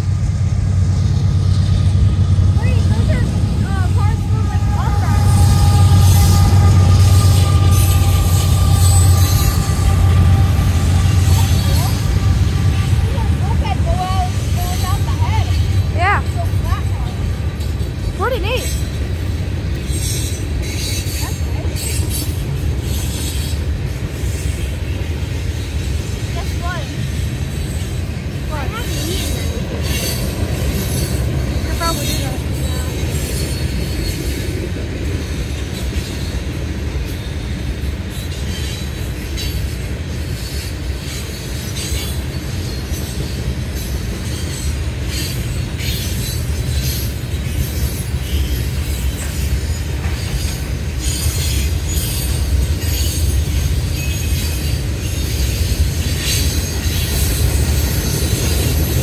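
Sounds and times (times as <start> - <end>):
freight train rumbling past: 0.0 - 59.0
wheel squeals: 4.0 - 16.9, 38.1 - 59.0.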